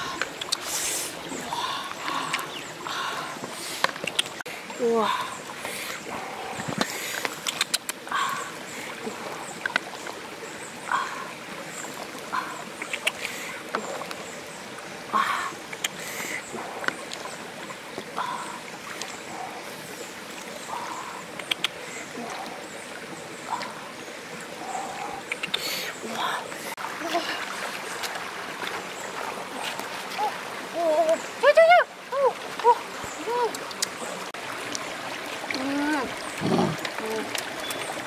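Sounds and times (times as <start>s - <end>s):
flowing stream: 0.0s - 38.0s.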